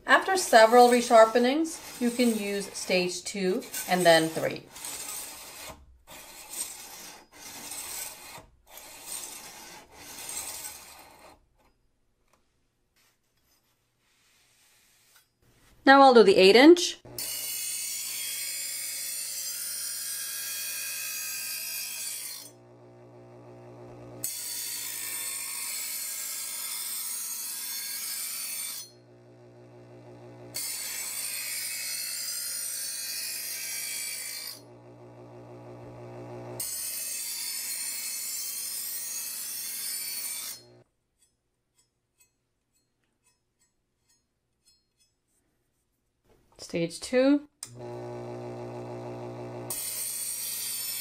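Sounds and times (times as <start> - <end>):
knife grinding on sharpener: 0.1 - 11.8, 17.1 - 22.6, 24.2 - 29.2, 30.5 - 34.7, 36.6 - 45.4, 49.7 - 51.0
sharpener motor humming: 17.1 - 17.5, 21.0 - 25.6, 28.7 - 31.8, 34.1 - 36.9, 47.7 - 51.0.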